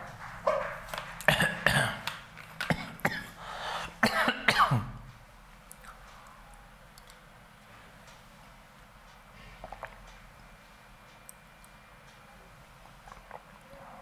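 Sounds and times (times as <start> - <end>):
man clearing his throat: 1.3 - 2.0, 4.0 - 5.0
man coughing: 1.3 - 2.0, 2.7 - 5.0.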